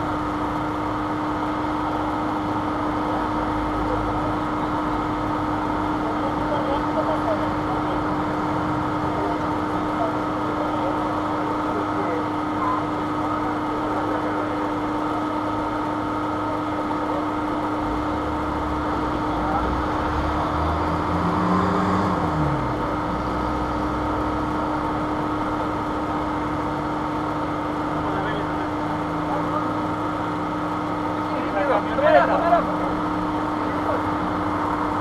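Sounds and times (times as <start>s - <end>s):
vehicle engine passing by: 18.5s - 25.2s.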